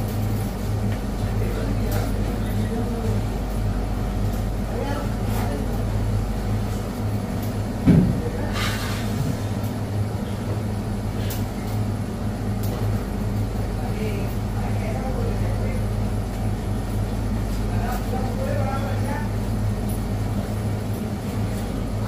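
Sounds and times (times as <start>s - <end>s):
kitchen machinery hum: 0.0s - 22.0s
thump: 7.8s - 8.2s.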